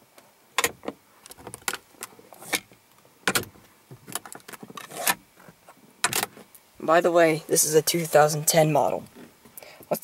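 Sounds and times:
plastic trim clicking and knocking: 3.3 - 5.2.

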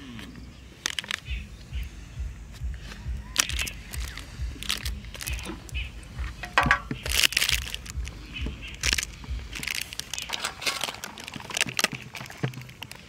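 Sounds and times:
plastic bag crinkling: 0.8 - 1.4, 3.4 - 5.5, 6.4 - 8.1, 8.7 - 13.0.

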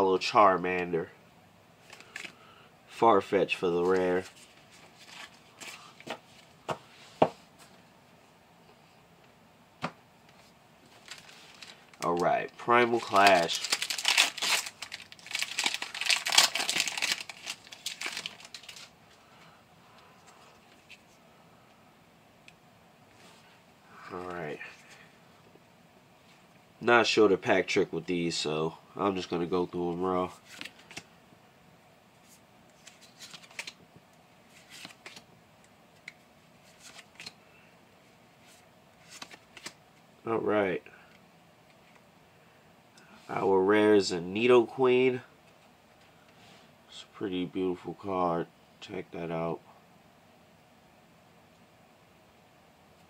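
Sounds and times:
faint handling of cards: 1.8 - 2.5, 3.1 - 7.9, 9.8 - 21.8, 29.1 - 31.1, 32.2 - 39.8
foil wrapper tearing and crinkling: 12.9 - 18.9.

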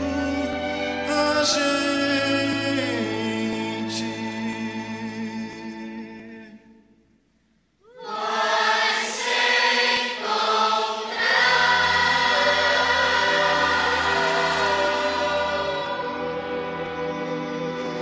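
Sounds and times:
background music: 0.0 - 7.0, 8.1 - 18.0
choral singing: 7.9 - 18.0.

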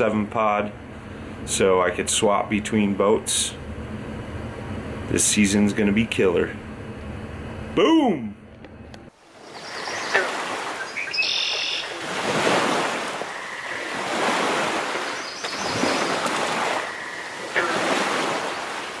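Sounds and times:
surf washing in: 9.2 - 19.0
birds chirping: 9.3 - 19.0.

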